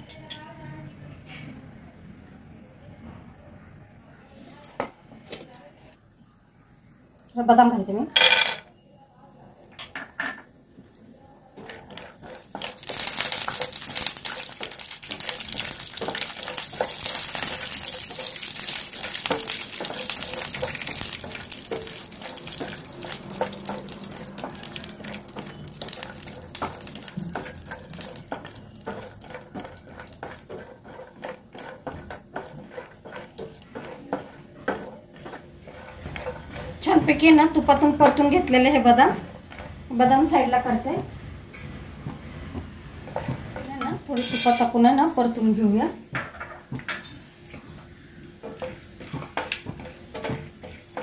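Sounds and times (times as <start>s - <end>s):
almonds sizzling in frying pan: 11.6s - 39.2s, 48.4s - 51.0s.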